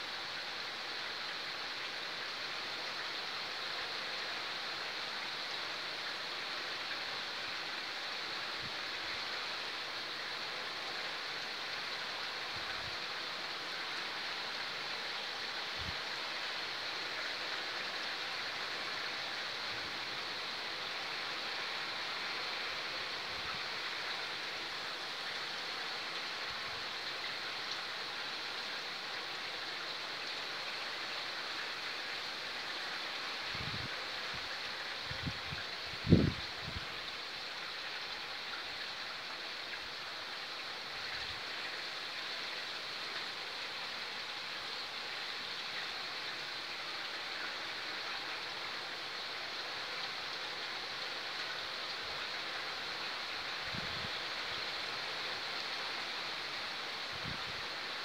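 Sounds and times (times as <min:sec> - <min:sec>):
heavy rain pouring: 0:11.8 - 0:58.0.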